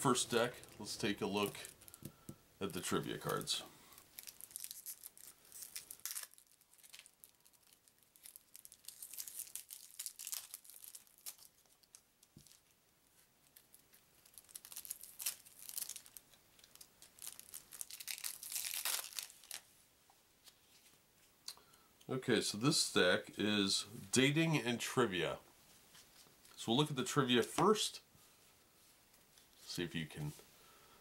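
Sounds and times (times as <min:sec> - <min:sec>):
plastic wrapping tearing and crinkling: 0:00.4 - 0:02.1, 0:02.7 - 0:12.8, 0:13.4 - 0:19.7.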